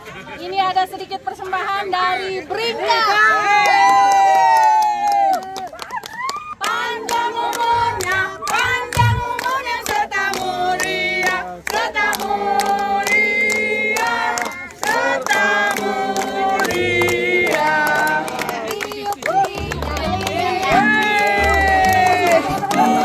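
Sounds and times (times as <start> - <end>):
group of people singing: 6.6 - 23.0
steady beat of sharp strikes: 8.5 - 9.3.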